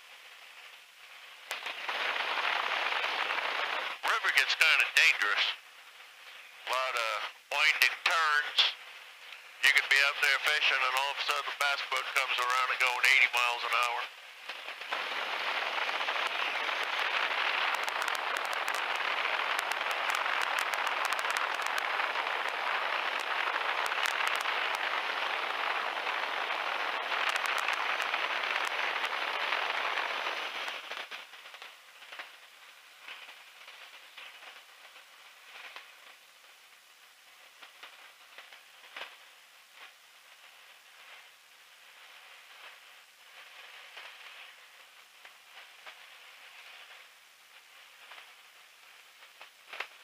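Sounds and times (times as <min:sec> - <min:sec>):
light crackling: 0:00.0 - 0:50.0
rushing wind in open cockpit: 0:14.9 - 0:30.7.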